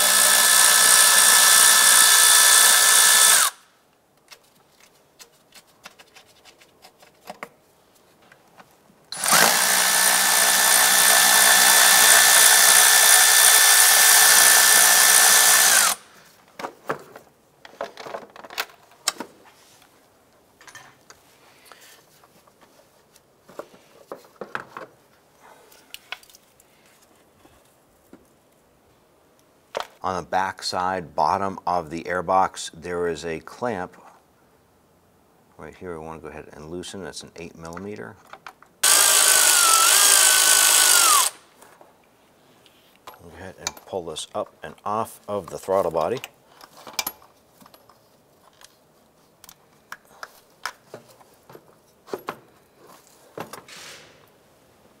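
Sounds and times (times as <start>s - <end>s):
electric ratchet motor spinning: 0.0s - 3.6s, 9.2s - 16.0s, 38.8s - 41.4s.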